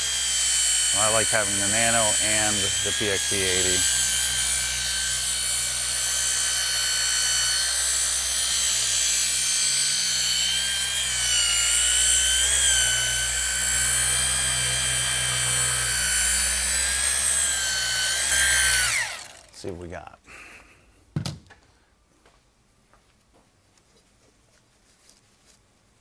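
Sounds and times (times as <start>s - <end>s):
polisher motor whine: 0.0s - 19.6s.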